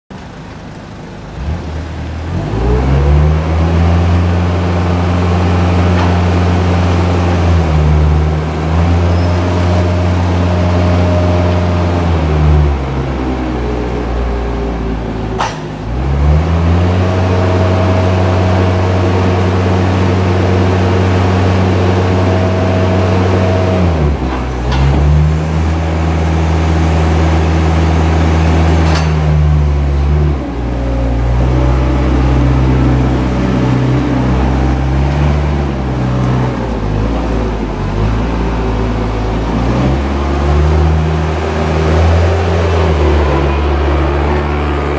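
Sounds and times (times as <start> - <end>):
telehandler engine revving: 0.3 - 44.9.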